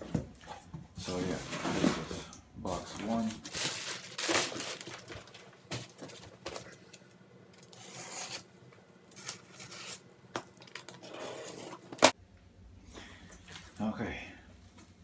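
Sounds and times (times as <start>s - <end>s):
packing tape ripping: 3.5s - 5.3s
cardboard box scraping on table: 11.0s - 12.0s.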